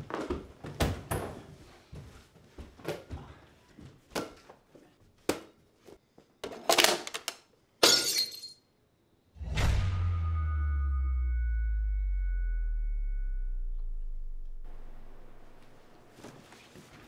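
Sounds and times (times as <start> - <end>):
loud crash: 9.4 - 15.8.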